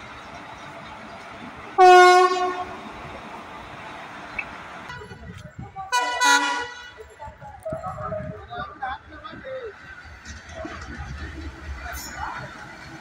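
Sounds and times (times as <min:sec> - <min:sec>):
passing train rumble: 0:00.0 - 0:13.0
locomotive horn blast: 0:01.8 - 0:02.8, 0:05.9 - 0:07.0.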